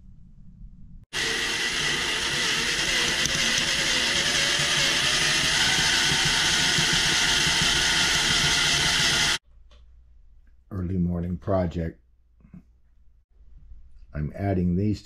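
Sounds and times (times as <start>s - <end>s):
electric drill boring into metal: 1.1s - 9.4s.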